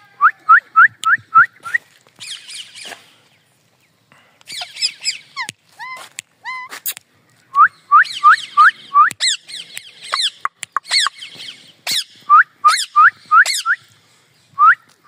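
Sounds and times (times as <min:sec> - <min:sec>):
parakeet whistled calls: 0:04.5 - 0:05.5, 0:07.7 - 0:13.8
sharp beak clicks: 0:09.0 - 0:11.2.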